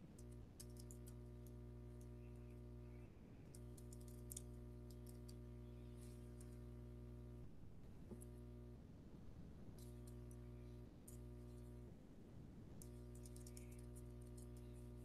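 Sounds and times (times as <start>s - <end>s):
steady low hum: 0.0s - 15.0s
computer keyboard typing: 0.2s - 1.2s, 12.8s - 14.8s.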